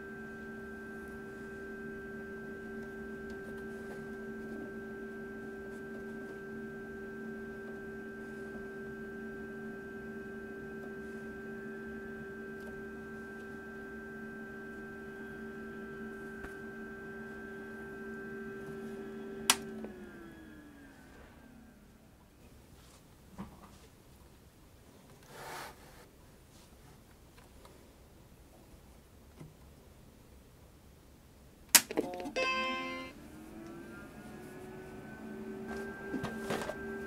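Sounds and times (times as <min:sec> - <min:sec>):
computer cooling fan hum: 0:00.0 - 0:22.4, 0:27.5 - 0:37.0
power switch click: 0:19.4 - 0:19.8.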